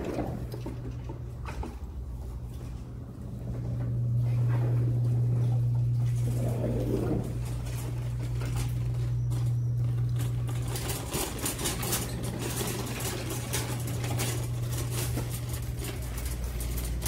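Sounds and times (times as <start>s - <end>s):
shopping cart rattling on tiles: 0.0s - 2.0s, 6.0s - 17.0s
steady low hum: 0.0s - 17.0s.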